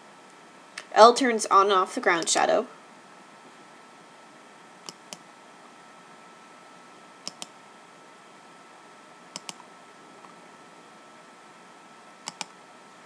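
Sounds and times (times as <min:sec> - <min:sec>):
computer mouse clicking: 0:04.8 - 0:05.2, 0:07.2 - 0:07.6, 0:09.3 - 0:09.6, 0:12.2 - 0:12.6.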